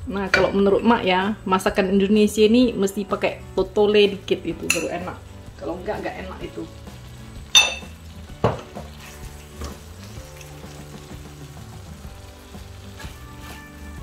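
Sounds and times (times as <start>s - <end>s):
soft background music: 0.0s - 14.0s
sauce sizzling in a wok: 0.1s - 14.0s
ringing metal clink: 7.6s - 7.9s.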